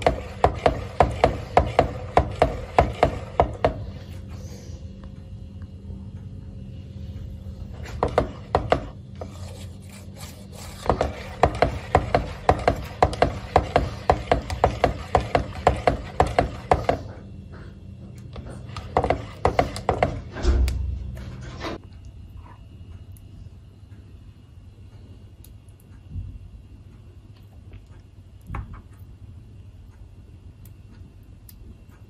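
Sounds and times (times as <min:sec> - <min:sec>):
whisk scraping and knocking a pot: 0:00.0 - 0:04.0, 0:07.7 - 0:17.2, 0:18.3 - 0:21.8.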